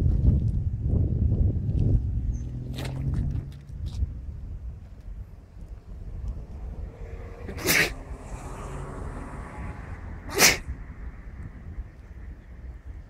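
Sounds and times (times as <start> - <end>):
steady low rumble: 0.0 - 13.0
person sneezing: 7.6 - 7.9, 10.3 - 10.6.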